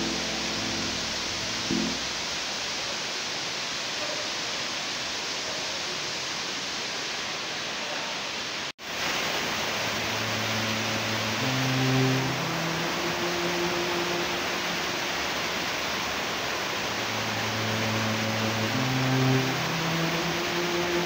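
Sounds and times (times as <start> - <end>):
faint music: 0.0 - 2.2, 10.0 - 21.0
small waterfall rushing: 0.0 - 21.0.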